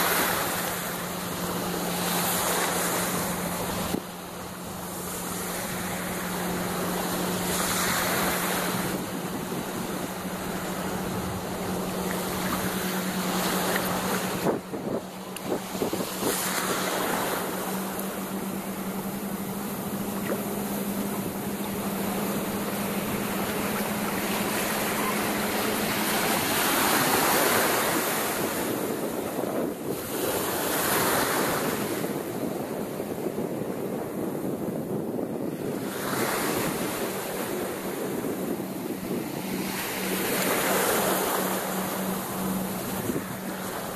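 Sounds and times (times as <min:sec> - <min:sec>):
steady low hum: 0:00.0 - 0:30.1
waves breaking on sandy shore: 0:00.0 - 0:43.9
wind buffeting microphone: 0:00.0 - 0:43.9.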